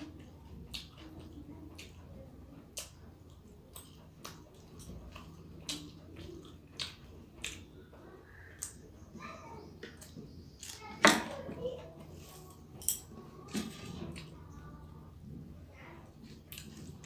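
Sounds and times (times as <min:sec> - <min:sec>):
chewing with wet mouth clicks: 0:00.1 - 0:07.8, 0:16.3 - 0:17.0.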